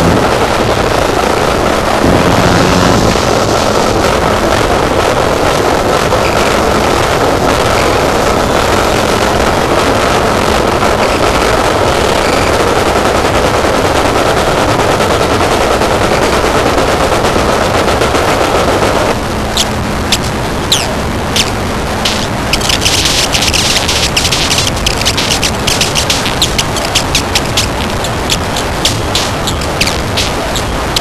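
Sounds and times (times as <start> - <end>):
loud distorted noise music: 0.0 - 5.1, 22.1 - 31.0.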